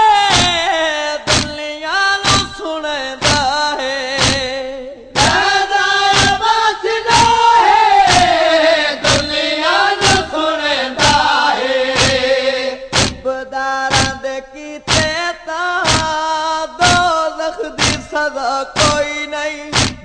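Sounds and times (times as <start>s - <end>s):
men singing a lament: 0.0s - 20.0s
chest-beating thumps: 0.3s - 3.6s, 4.2s - 4.6s, 5.2s - 14.3s, 14.9s - 18.2s, 18.8s - 20.0s
chorus singing: 5.2s - 15.1s.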